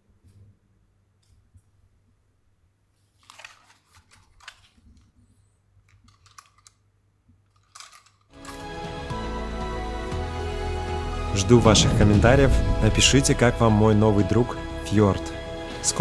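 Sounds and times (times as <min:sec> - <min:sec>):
small objects clicking and rustling: 0:03.2 - 0:08.6
music: 0:08.4 - 0:16.0
low hum: 0:11.2 - 0:14.9.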